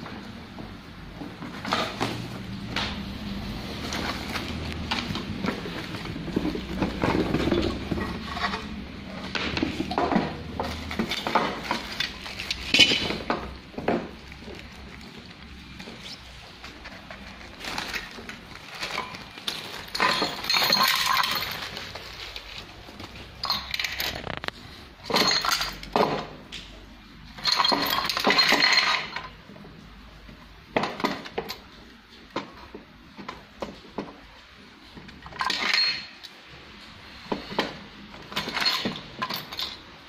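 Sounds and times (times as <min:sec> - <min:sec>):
small metal parts clinking and rattling: 0:09.6 - 0:26.3, 0:27.3 - 0:29.4, 0:35.2 - 0:36.4, 0:37.6 - 0:40.0.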